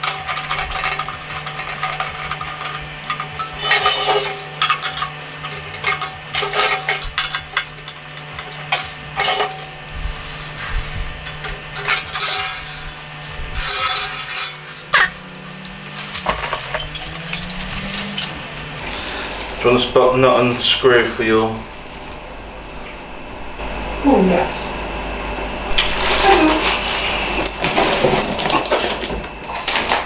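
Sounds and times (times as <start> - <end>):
metal barbecue parts clanking: 0.0 - 18.9.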